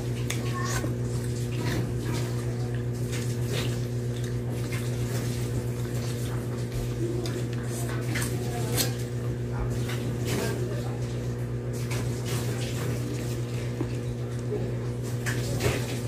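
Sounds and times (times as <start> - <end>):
lip smacks and chewing: 1.1 - 8.4.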